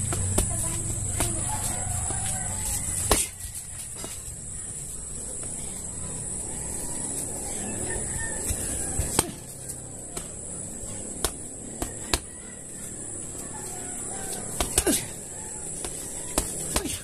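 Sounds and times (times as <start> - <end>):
punches thudding on punching bag: 0.0 - 1.5, 3.0 - 3.4, 9.0 - 9.5, 11.1 - 12.3, 14.5 - 15.2, 15.8 - 17.0
insects buzzing: 0.0 - 17.0.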